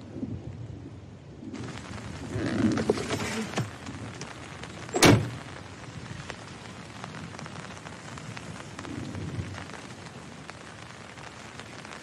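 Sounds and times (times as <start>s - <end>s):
steady rain: 0.0s - 12.0s.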